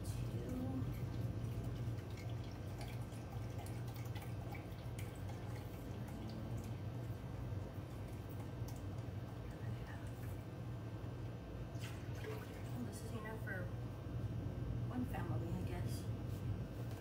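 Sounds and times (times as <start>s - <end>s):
steady low hum: 0.0s - 17.0s
liquid pouring into pot: 0.8s - 9.4s, 11.7s - 12.8s.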